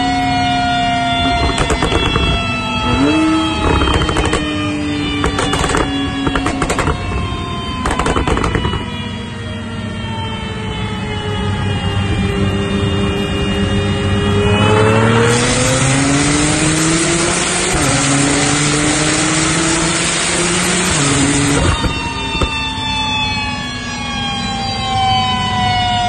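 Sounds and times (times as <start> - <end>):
sports car engine roaring: 0.0 - 24.6
exhaust pops: 1.2 - 4.5, 5.2 - 8.9, 21.2 - 22.6.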